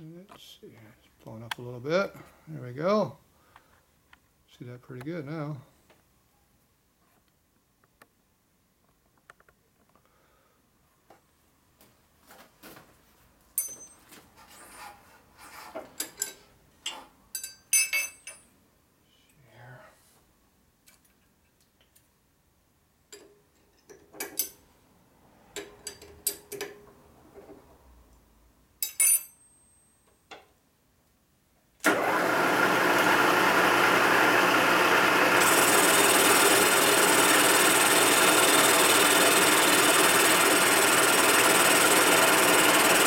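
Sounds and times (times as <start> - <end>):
milling machine motor running: 31.9 - 43.0.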